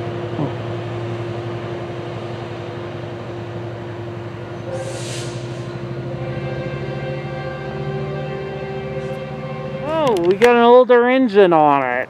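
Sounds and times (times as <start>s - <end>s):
diesel locomotive engine drone: 0.0s - 12.0s
brief hiss: 4.7s - 5.7s.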